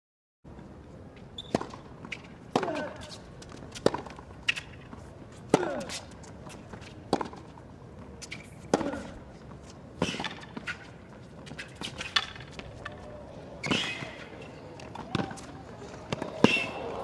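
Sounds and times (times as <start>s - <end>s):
racquets hitting tennis ball: 1.4s - 17.0s
ball bouncing on hard court: 14.8s - 16.9s.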